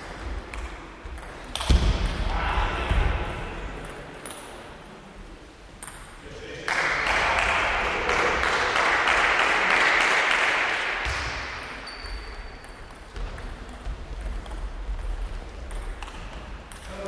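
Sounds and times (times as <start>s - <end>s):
spectators clapping: 6.6s - 11.3s.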